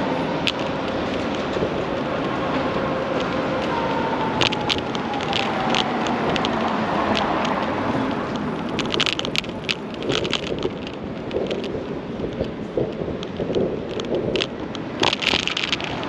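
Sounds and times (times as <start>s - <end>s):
sharp clicks and rattles: 0.0s - 16.0s
wheels rolling over pavement: 0.0s - 16.0s
wind on microphone: 0.0s - 16.0s.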